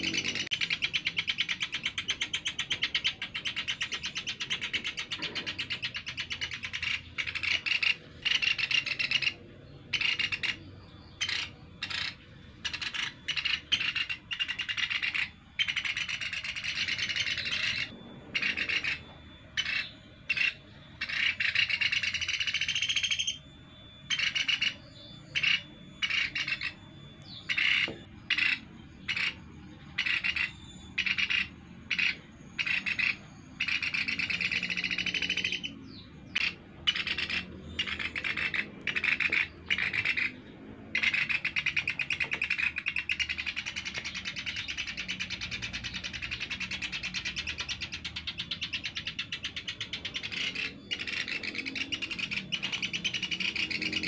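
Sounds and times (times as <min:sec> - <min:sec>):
woodpeckers calling harshly: 0:00.0 - 0:23.4, 0:24.0 - 0:54.0.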